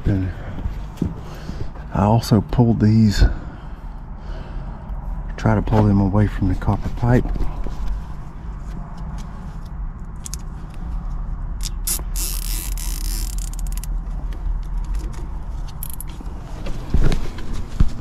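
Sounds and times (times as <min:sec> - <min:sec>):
steady low rumble: 0:00.0 - 0:18.0
wires clicking and rustling: 0:11.6 - 0:16.8.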